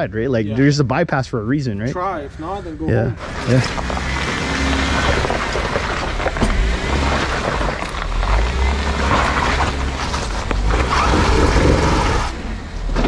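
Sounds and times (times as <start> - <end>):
tyres crackling over stones: 3.2 - 12.3.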